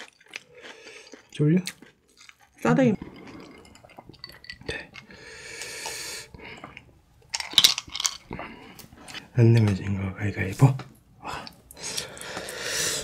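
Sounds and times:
person sipping and swallowing: 2.3 - 7.0.

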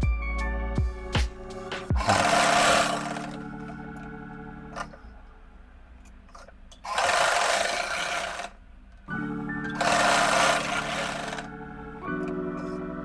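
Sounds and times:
sewing machine stitching: 2.0 - 3.4, 6.8 - 8.6, 9.8 - 11.5.

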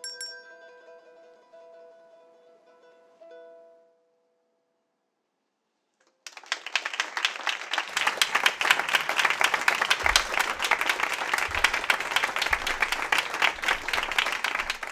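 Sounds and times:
audience applauding: 6.2 - 14.9.

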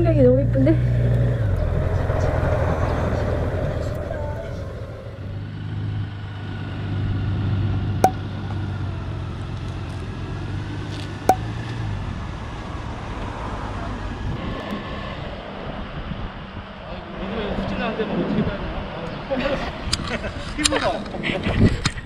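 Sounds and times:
motorcycle engine humming: 0.0 - 14.2.

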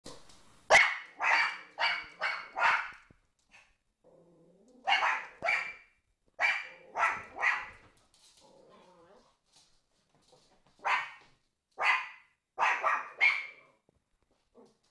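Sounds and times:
small dogs yapping: 0.7 - 3.0, 4.8 - 5.8, 6.4 - 7.9, 11.8 - 13.8.

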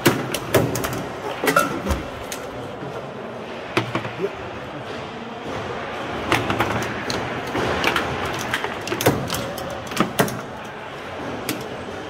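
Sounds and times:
foosball clacks and knocks: 6.2 - 10.6.

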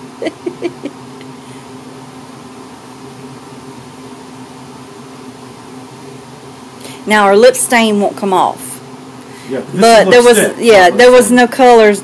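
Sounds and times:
mechanical hum: 0.0 - 12.0
person muttering: 0.2 - 0.9.

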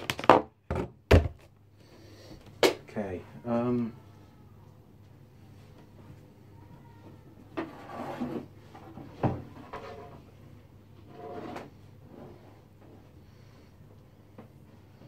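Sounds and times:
furniture scraping and sliding: 7.6 - 10.3, 11.0 - 12.7.

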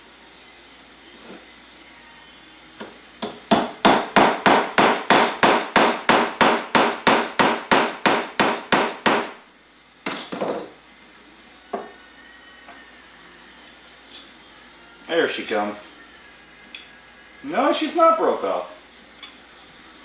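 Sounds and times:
hammer tapping metal punch: 3.2 - 9.3.

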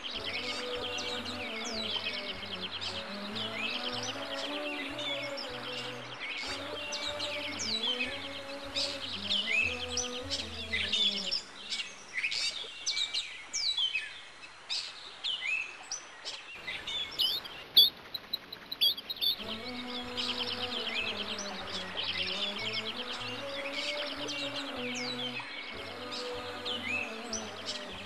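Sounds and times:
gentle background music: 0.0 - 12.4, 16.7 - 28.0
songbirds chirping: 0.0 - 28.0.

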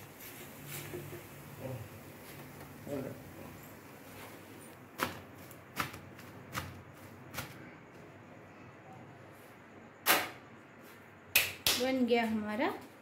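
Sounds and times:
hands slapping flatbread: 5.0 - 7.7.

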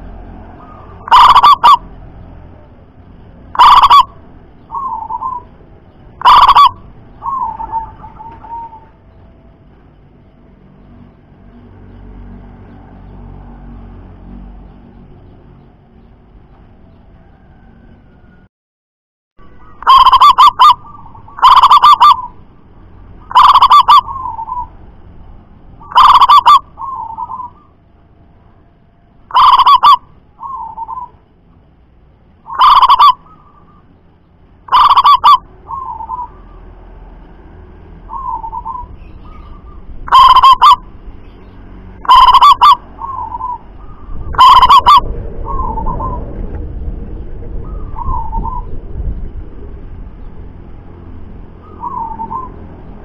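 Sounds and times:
dove cooing: 0.6 - 1.8, 3.6 - 4.1, 4.7 - 5.5, 6.2 - 9.0, 19.6 - 22.4, 23.3 - 24.7, 25.8 - 27.7, 29.3 - 31.2, 32.5 - 33.7, 34.7 - 36.6, 38.1 - 40.8, 42.0 - 46.4.

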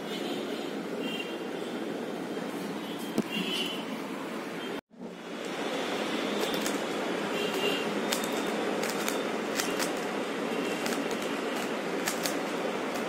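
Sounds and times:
puzzle cube clicking: 8.1 - 10.1, 10.7 - 13.0.

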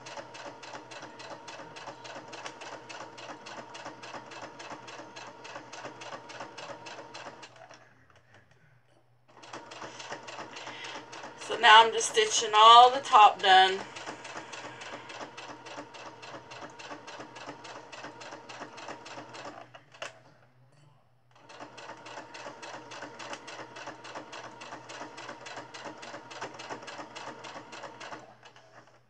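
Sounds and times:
sewing machine motor hum: 0.0 - 7.8, 9.3 - 20.2, 21.3 - 29.0
sewing machine needle clatter: 0.0 - 7.8, 13.8 - 20.2, 21.4 - 29.0.

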